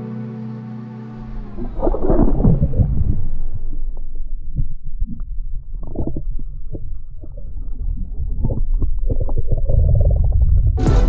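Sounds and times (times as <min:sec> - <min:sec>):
underwater churning rumble: 0:01.2 - 0:10.8
underwater knocks and clicks: 0:04.5 - 0:10.8.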